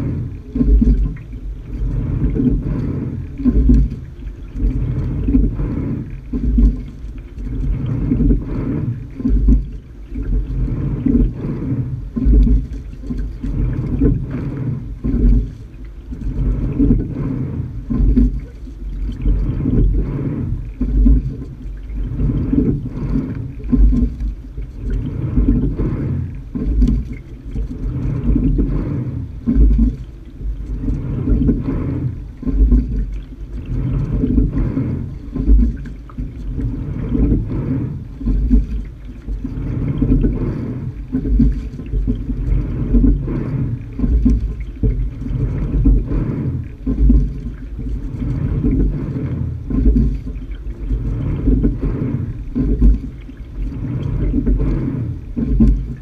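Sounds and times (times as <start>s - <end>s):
dull knocks of oars and seat: 0.0s - 56.0s
water rushing along hull: 0.0s - 56.0s.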